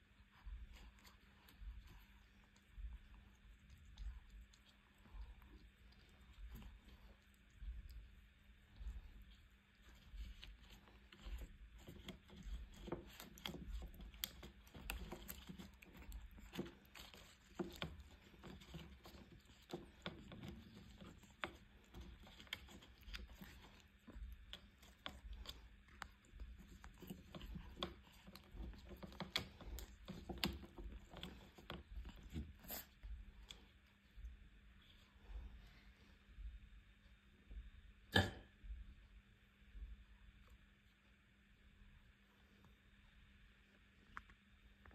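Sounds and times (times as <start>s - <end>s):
kitten chewing stems: 0.0s - 35.6s.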